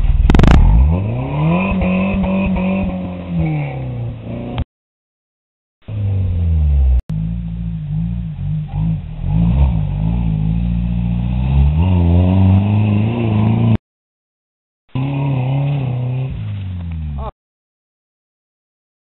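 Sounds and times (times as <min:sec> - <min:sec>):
truck engines revving: 0:00.0 - 0:04.7, 0:05.8 - 0:13.8, 0:14.9 - 0:17.3.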